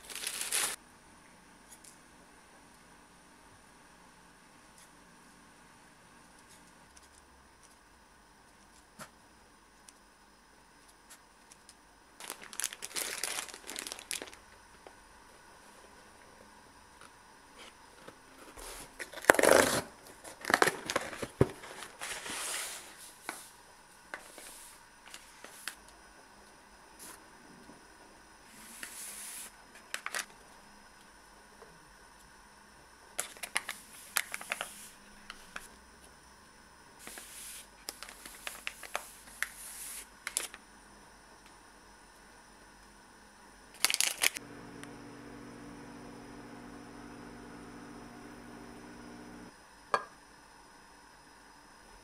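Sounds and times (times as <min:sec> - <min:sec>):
paper packets rustling and tearing: 0:00.0 - 0:00.8, 0:12.2 - 0:14.4, 0:18.8 - 0:22.9, 0:33.2 - 0:34.7, 0:43.8 - 0:44.4
steady low hum: 0:44.4 - 0:52.0.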